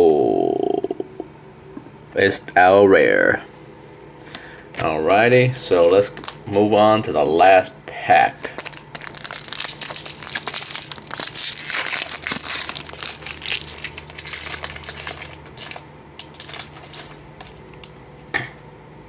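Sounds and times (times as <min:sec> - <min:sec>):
foil wrapper crinkling: 0:05.6 - 0:06.7, 0:08.3 - 0:17.9.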